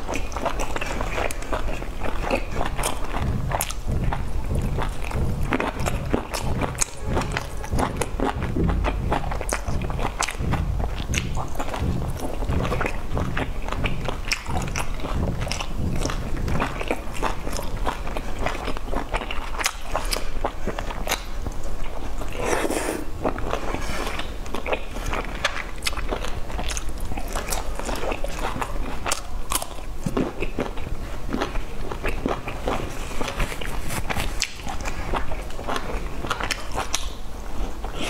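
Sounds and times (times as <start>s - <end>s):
person chewing dumplings: 0.0s - 38.0s
mouth clicks: 0.1s - 20.2s.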